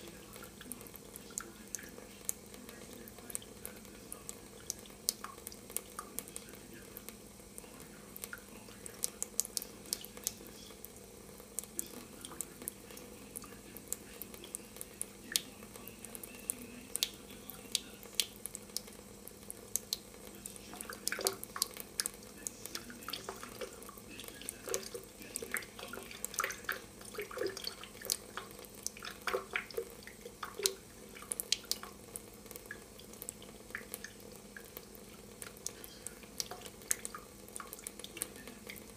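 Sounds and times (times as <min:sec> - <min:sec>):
steady low hum: 0:00.0 - 0:38.9
water dripping and splashing: 0:00.0 - 0:38.9
water trickling into steel sink: 0:11.5 - 0:38.9.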